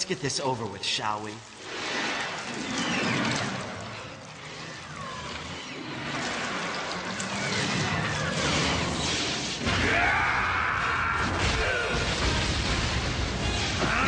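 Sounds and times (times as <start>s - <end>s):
crashing and smashing effects: 5.6s - 14.0s.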